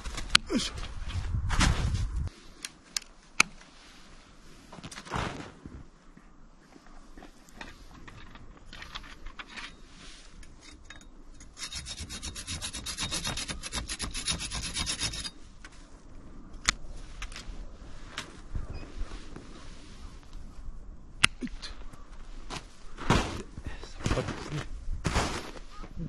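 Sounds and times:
saw cutting branch: 11.5s - 15.4s.

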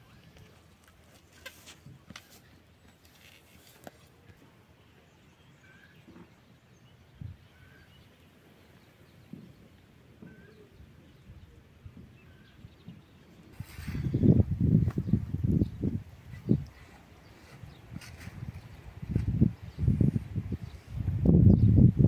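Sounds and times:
faint outdoor rural ambience: 0.0s - 22.0s
distant bird chirps: 4.9s - 18.9s.

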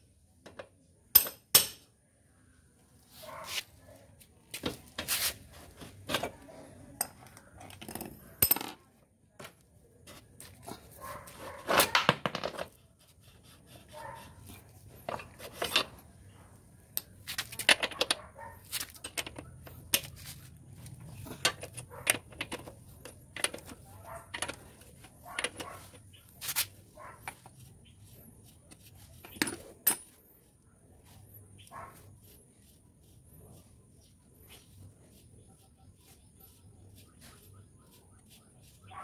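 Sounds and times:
wrench clinking on metal bolts: 1.1s - 1.9s, 29.3s - 30.2s.

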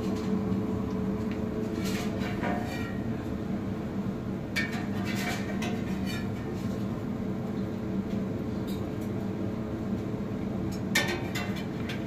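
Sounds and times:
metal spatula scraping frying pan: 1.8s - 3.0s, 4.8s - 6.3s.

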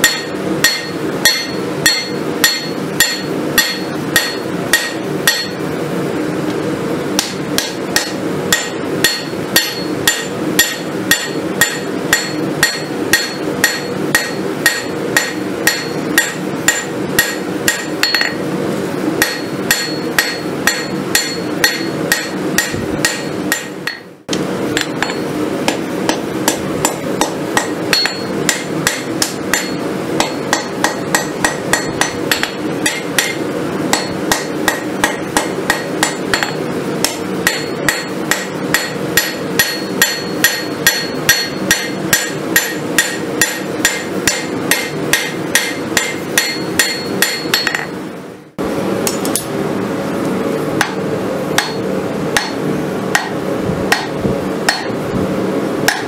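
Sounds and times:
hammer ringing on anvil: 0.0s - 5.6s, 7.2s - 18.4s, 19.2s - 24.1s, 24.8s - 48.0s, 51.6s - 51.8s, 52.4s - 52.6s, 53.2s - 54.1s, 54.7s - 55.0s.

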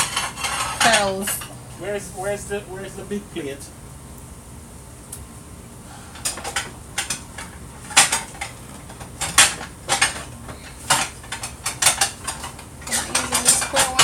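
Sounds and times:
plates and utensils clinking: 0.0s - 1.5s, 6.2s - 14.0s.

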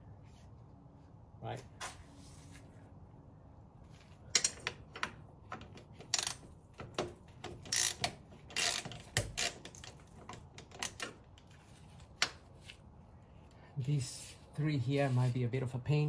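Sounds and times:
socket ratchet clicking: 4.6s - 11.2s.

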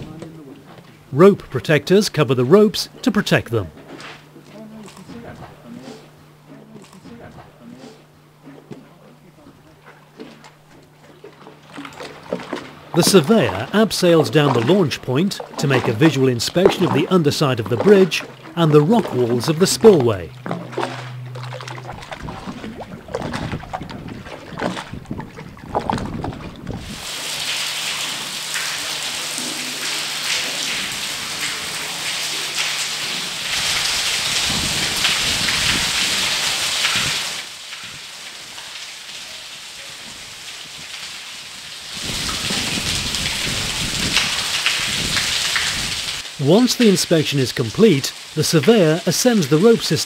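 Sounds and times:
water hissing: 4.2s - 25.0s, 26.7s - 50.0s.

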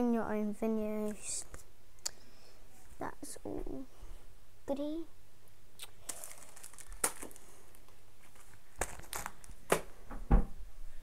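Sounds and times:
packaging rustling and crinkling: 5.9s - 9.9s.

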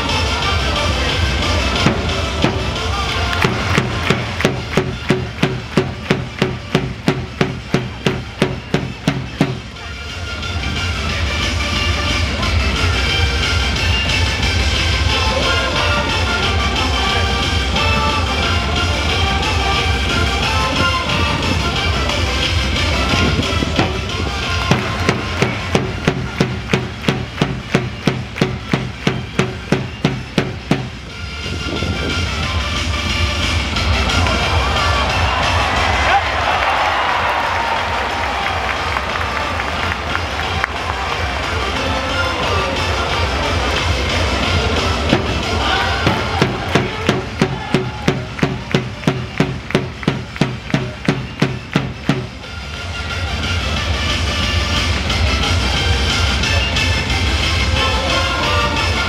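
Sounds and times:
low background din: 0.0s - 59.0s
low stadium rumble: 0.0s - 59.0s
rhythmic cheering strikes: 0.0s - 59.0s
hands clapping in unison: 3.0s - 7.9s, 24.6s - 29.9s, 36.0s - 41.5s, 46.0s - 52.8s.

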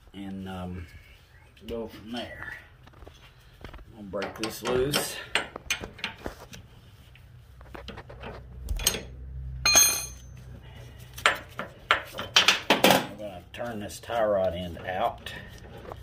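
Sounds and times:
ringing metal clank: 8.8s - 10.4s
wrench clinking on nut: 9.7s - 10.4s.

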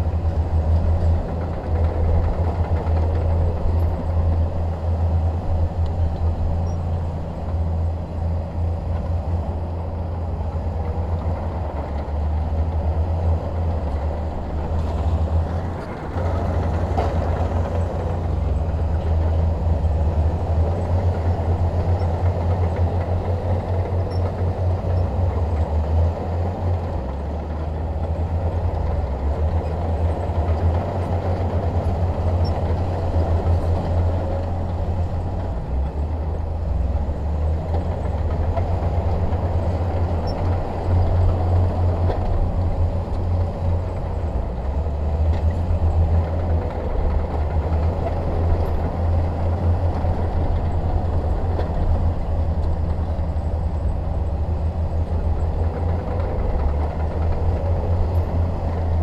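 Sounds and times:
heavy diesel engine droning: 0.0s - 59.0s.

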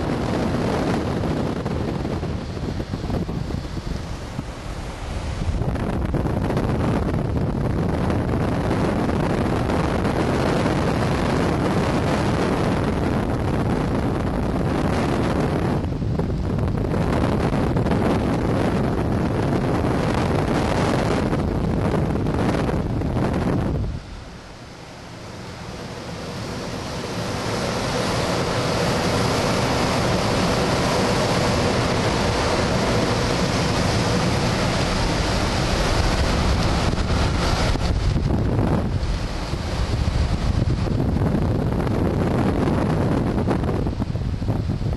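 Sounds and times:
air rushing past glider: 0.0s - 44.9s
wind buffeting microphone: 0.0s - 44.9s.

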